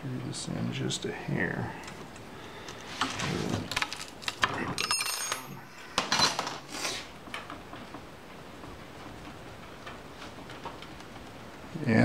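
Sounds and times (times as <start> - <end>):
ringing metal clink: 4.8 - 5.6
wrench clinking on bolt: 4.8 - 5.6.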